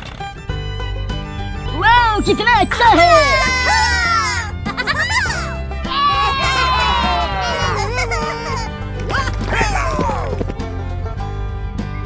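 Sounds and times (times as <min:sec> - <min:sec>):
background music: 0:00.0 - 0:12.0
high-pitched wavering cry: 0:02.0 - 0:04.5.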